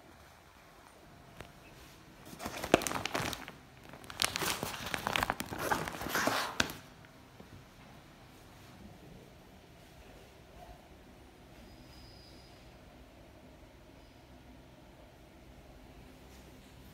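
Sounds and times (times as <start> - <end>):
padded paper bag crinkling: 2.2 - 6.9.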